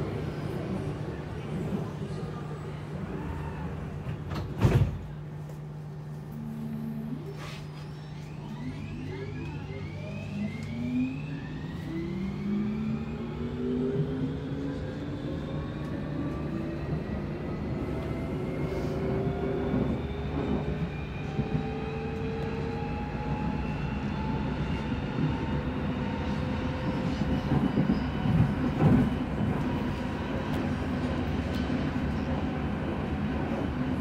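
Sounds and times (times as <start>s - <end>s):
train running noise: 0.0s - 34.0s
train motor whine rising: 6.3s - 15.0s.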